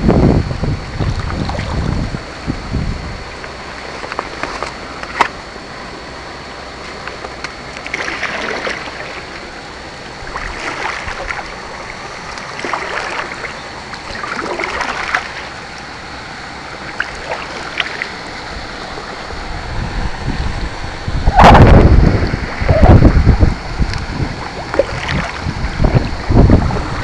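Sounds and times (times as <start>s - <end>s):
steady wash of water: 0.0s - 27.0s
paddle splashing water: 7.8s - 9.6s, 10.2s - 16.0s, 16.7s - 19.3s, 23.3s - 27.0s.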